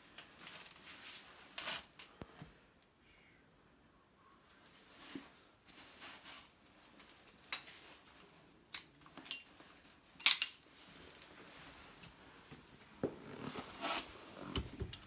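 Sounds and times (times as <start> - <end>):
metal hand tools clinking: 10.2 - 10.6.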